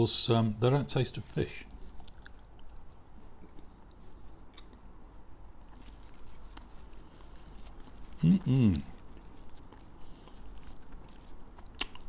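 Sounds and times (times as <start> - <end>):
person chewing crunchy toast: 1.8 - 4.9, 5.5 - 12.0.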